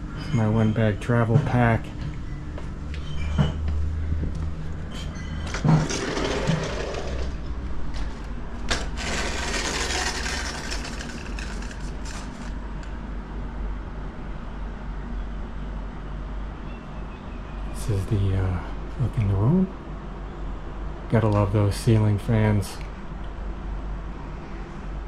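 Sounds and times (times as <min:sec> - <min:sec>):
door sliding along track: 0:04.9 - 0:12.6.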